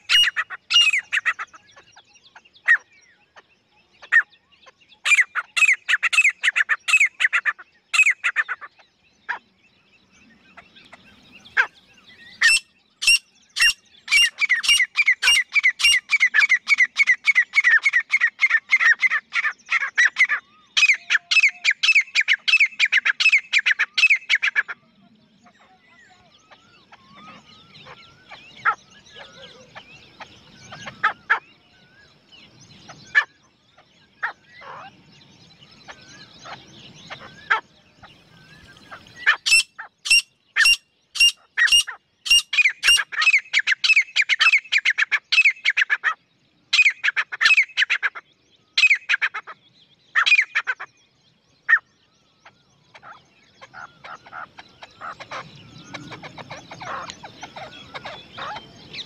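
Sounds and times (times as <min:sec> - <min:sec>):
francolin calling: 0:00.0 - 0:03.4, 0:04.0 - 0:24.8, 0:35.6 - 0:48.2, 0:48.8 - 0:50.9, 0:51.7 - 0:59.0.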